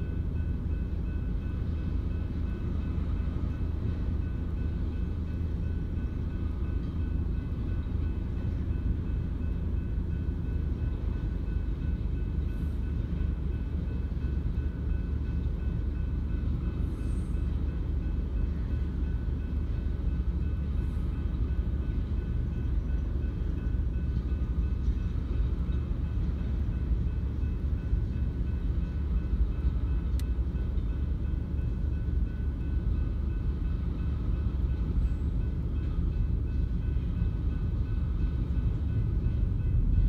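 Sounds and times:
crossing bell ringing: 0:00.0 - 0:40.0
freight train rumbling: 0:00.0 - 0:40.0.

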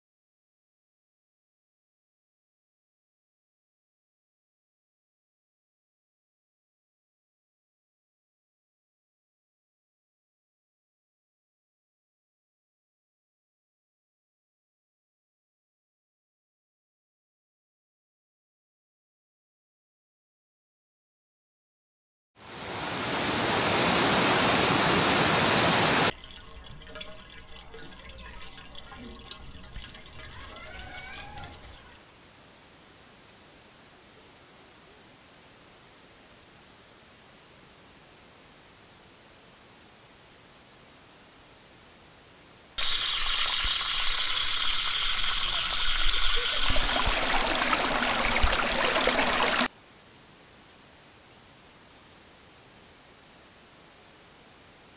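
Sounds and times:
waterfall rushing over boulders: 0:22.4 - 0:26.1, 0:42.8 - 0:49.7
tap water running into sink: 0:26.1 - 0:31.9, 0:42.8 - 0:49.7.

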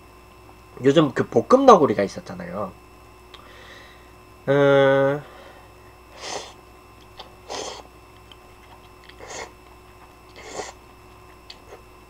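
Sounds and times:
mouth clicks: 0:07.0 - 0:10.8
person slurping noodles: 0:07.4 - 0:07.8, 0:09.1 - 0:09.6, 0:10.3 - 0:10.8.

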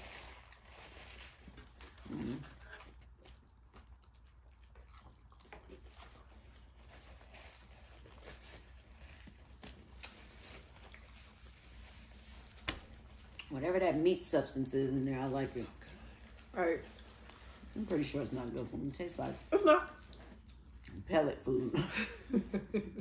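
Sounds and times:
paper food wrappers handled: 0:00.0 - 0:03.0, 0:05.8 - 0:14.2, 0:15.2 - 0:20.1
soft chewing: 0:00.0 - 0:14.0, 0:14.9 - 0:23.0.

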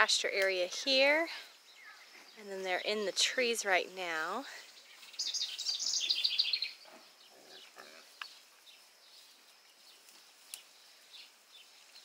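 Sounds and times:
songbird trilling: 0:01.7 - 0:03.7, 0:04.6 - 0:09.2
pigs grunting: 0:06.9 - 0:08.2.

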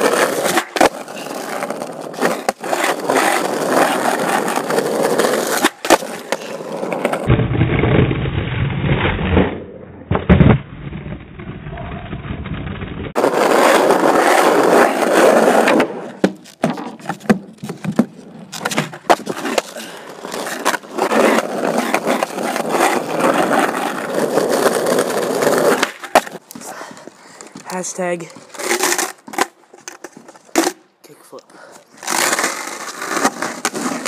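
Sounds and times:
skateboard wheels rolling on pavement: 0:00.0 - 0:08.0, 0:08.9 - 0:34.0
skateboard deck clacking on ground: 0:13.2 - 0:23.6.

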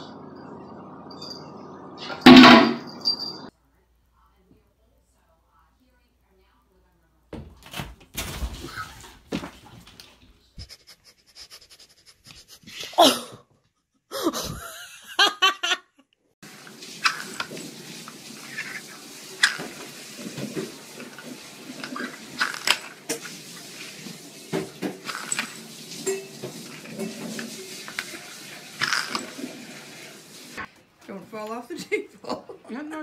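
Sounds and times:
person laughing: 0:10.6 - 0:13.5, 0:14.1 - 0:16.1.

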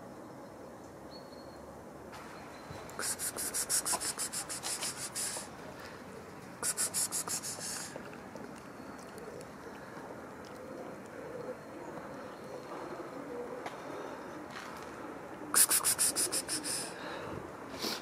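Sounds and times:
cat eating: 0:05.7 - 0:11.4.

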